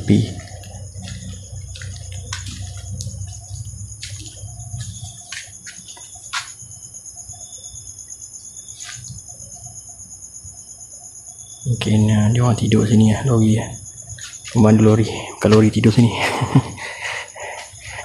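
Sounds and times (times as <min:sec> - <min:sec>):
low hum: 0:00.0 - 0:06.3
night insects trilling: 0:00.0 - 0:18.0.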